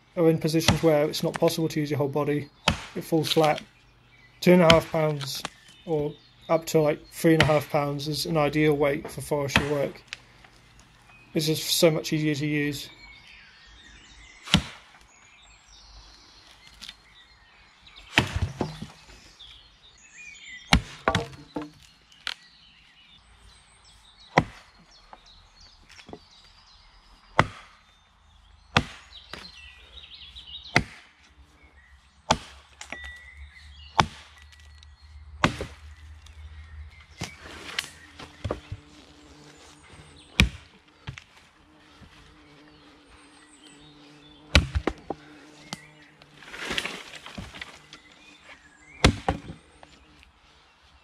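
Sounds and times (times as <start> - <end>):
axe chopping wood: 0.6 - 1.6, 2.6 - 3.7, 4.6 - 5.6, 7.3 - 7.8, 9.5 - 9.9, 14.4 - 15.0, 18.1 - 19.0, 20.7 - 21.9, 24.3 - 24.8, 27.3 - 27.9, 28.7 - 29.6, 30.7 - 31.2, 32.2 - 33.2, 33.9 - 34.6, 35.4 - 35.9, 40.3 - 41.3, 44.5 - 45.8, 49.0 - 49.6.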